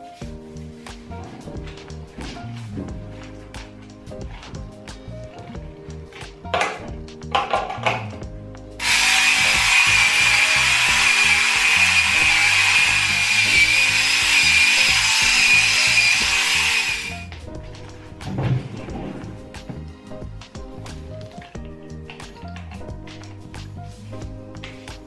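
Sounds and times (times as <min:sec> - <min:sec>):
electric hair remover whine: 0:08.8 - 0:17.4.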